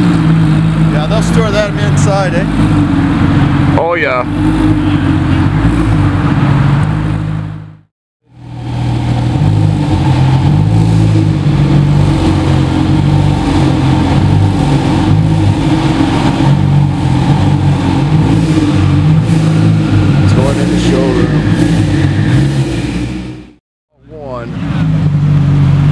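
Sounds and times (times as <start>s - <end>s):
sports car engine idling: 0.0s - 7.6s, 8.3s - 25.9s
car engine outside: 0.0s - 25.9s.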